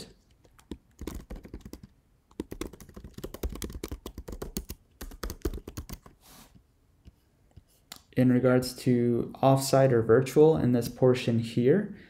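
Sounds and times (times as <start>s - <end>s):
computer keyboard typing: 0.4s - 6.2s.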